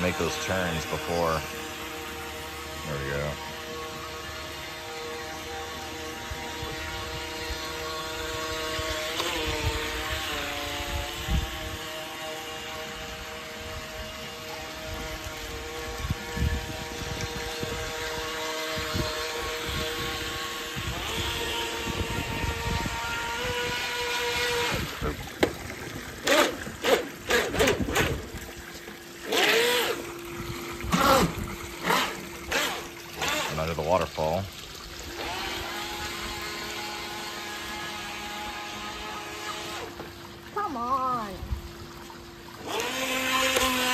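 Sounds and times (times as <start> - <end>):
small electric motor whining: 0.0 - 33.9, 35.0 - 41.4, 42.3 - 43.9
water splashing and trickling: 0.0 - 43.9.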